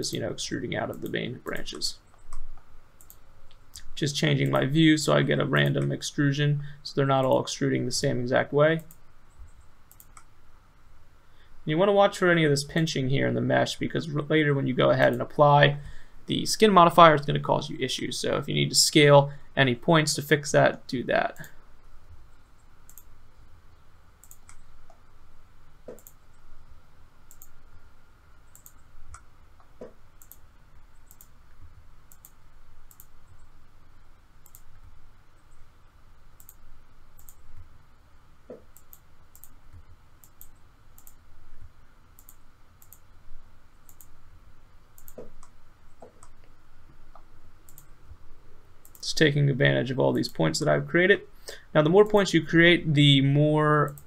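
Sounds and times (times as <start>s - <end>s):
low steady hum: 0.0s - 54.0s
mouse and keyboard clicks: 25.9s - 26.2s, 45.0s - 46.4s.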